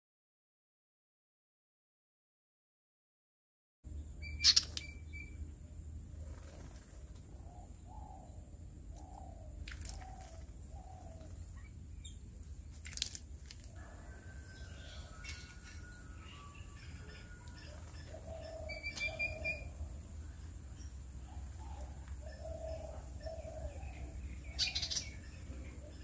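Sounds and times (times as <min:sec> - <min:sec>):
birds chirping: 0:03.9 - 0:05.6, 0:06.2 - 0:12.8, 0:13.7 - 0:26.0
bird splashing in birdbath: 0:09.6 - 0:10.5, 0:12.4 - 0:14.4.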